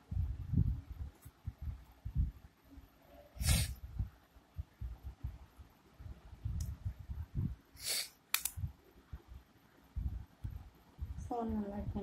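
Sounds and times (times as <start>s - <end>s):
sharp clicks: 8.3s - 8.6s
smartphone handling noise: 8.3s - 8.7s.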